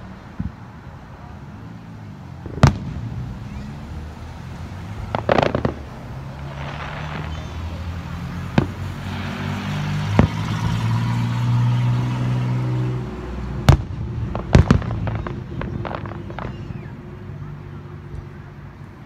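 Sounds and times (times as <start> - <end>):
firework bangs: 2.4 - 4.1, 4.7 - 12.8, 13.4 - 17.1.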